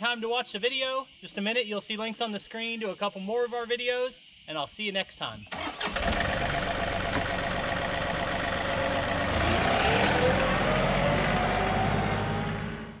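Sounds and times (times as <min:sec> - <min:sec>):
engine running: 0:05.6 - 0:13.0
rising whine: 0:06.6 - 0:13.0.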